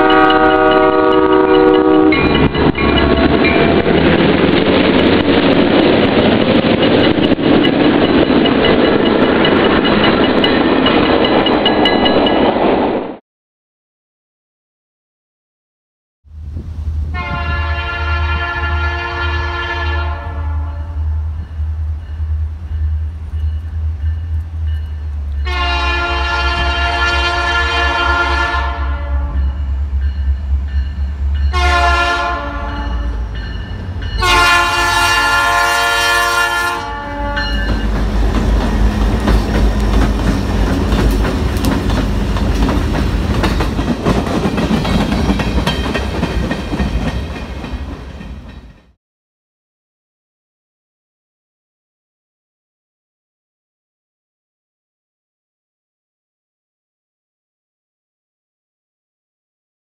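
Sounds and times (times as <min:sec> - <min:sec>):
locomotive horn blasts: 0:00.0 - 0:02.4, 0:17.1 - 0:21.4, 0:25.4 - 0:29.8, 0:31.5 - 0:33.4, 0:34.2 - 0:37.8
locomotive engines rumbling: 0:00.0 - 0:12.4, 0:16.3 - 0:48.7
train wheels on rails: 0:00.0 - 0:13.2, 0:20.9 - 0:49.0.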